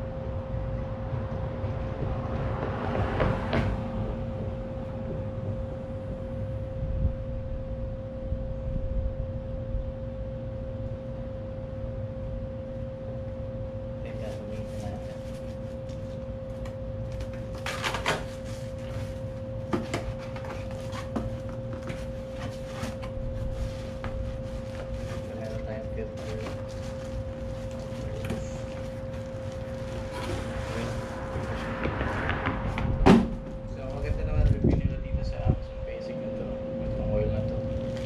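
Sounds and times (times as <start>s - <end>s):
low rumble: 0.0s - 13.2s, 26.7s - 36.1s
steady high hum: 0.0s - 38.0s.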